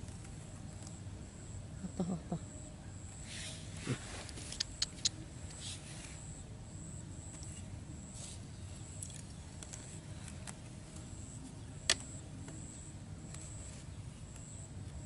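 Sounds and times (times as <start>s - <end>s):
bamboo sticks clicking together: 4.5s - 5.2s.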